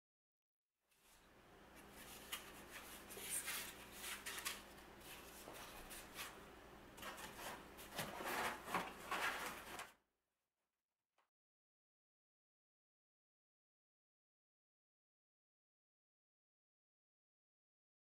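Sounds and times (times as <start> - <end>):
cardboard scraping and rustling: 7.0 - 9.9.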